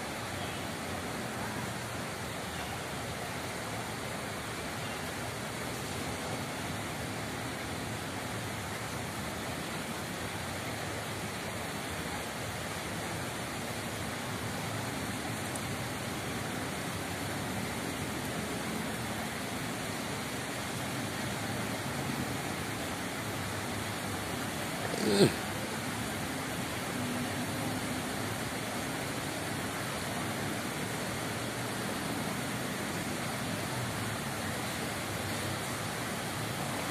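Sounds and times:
water rushing in stone channel: 0.0s - 36.9s.

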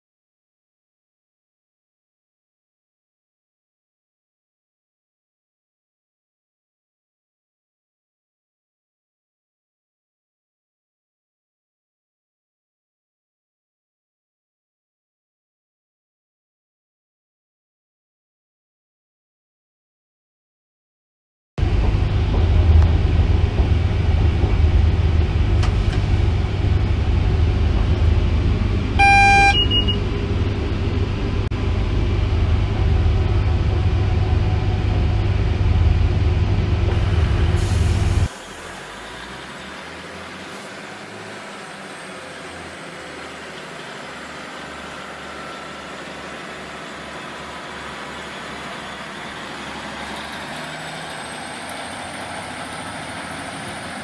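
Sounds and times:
locomotive cab rumble: 21.6s - 54.0s
two-tone horn blast: 29.0s - 30.2s.

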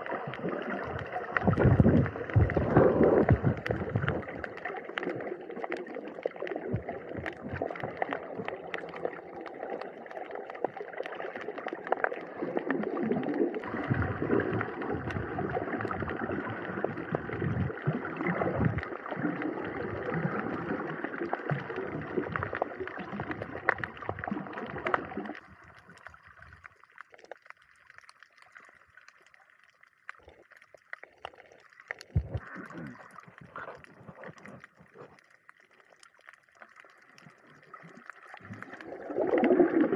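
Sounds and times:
small knocks and splashes: 0.0s - 12.2s, 21.2s - 39.9s
water sloshing and gurgling: 0.0s - 39.9s.

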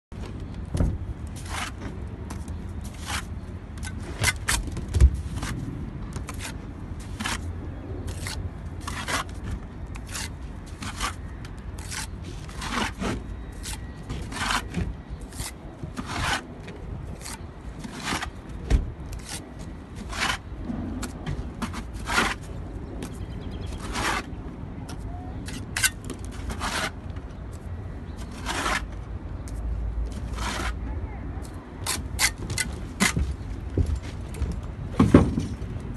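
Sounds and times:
trowel scraping mortar: 8.1s - 9.4s, 10.0s - 11.2s, 11.8s - 16.6s, 17.2s - 18.4s, 19.1s - 20.5s, 21.6s - 22.4s, 23.6s - 24.3s, 25.4s - 27.1s, 28.2s - 28.9s, 30.2s - 30.8s.

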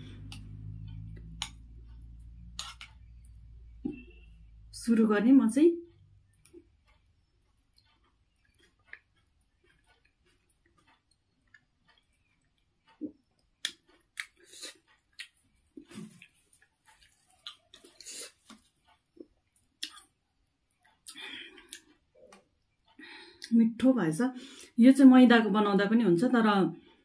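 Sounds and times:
person chewing: 0.1s - 4.2s, 6.3s - 23.5s.

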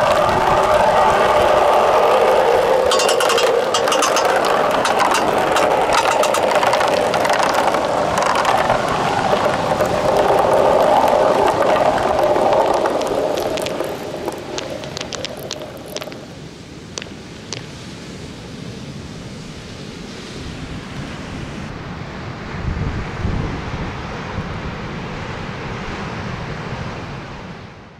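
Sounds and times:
balls rolling down a track: 0.0s - 16.3s
balls knocking together: 2.8s - 16.3s.

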